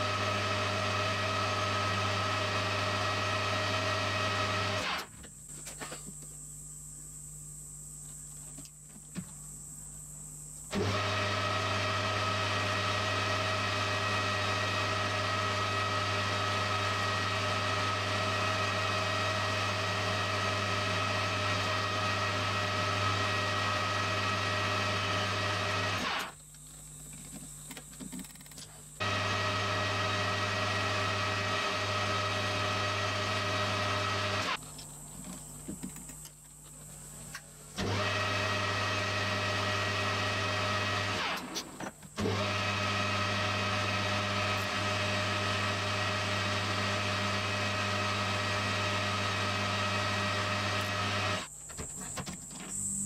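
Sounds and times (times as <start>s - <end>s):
metal lathe motor and gear hum: 12.6s - 26.3s.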